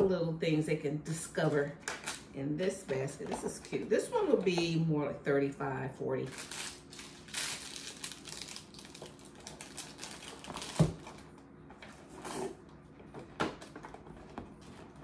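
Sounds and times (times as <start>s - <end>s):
crinkly wrapping rustling: 6.3s - 11.4s.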